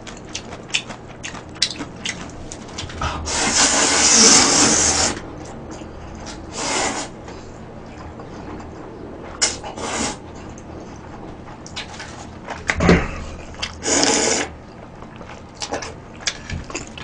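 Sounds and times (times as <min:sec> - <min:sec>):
man slurping noodles: 0:03.1 - 0:05.2, 0:13.8 - 0:14.5.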